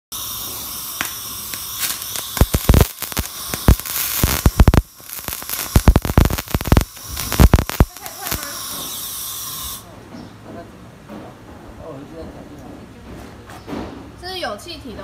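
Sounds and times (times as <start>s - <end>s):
welding arc crackling: 0.1s - 9.8s
steady hiss: 0.2s - 8.9s.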